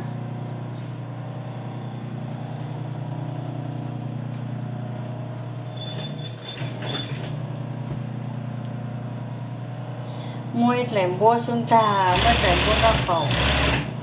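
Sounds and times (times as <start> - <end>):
sewing machine motor humming: 11.9 - 14.0.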